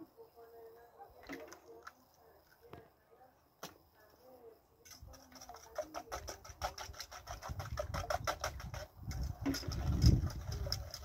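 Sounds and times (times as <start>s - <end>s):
fork beating eggs in metal bowl: 4.9s - 11.0s.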